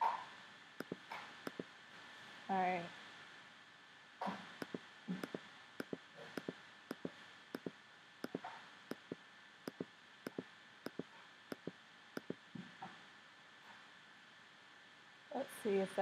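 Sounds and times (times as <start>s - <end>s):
computer mouse button clicks: 0.8s - 1.6s, 4.6s - 12.4s.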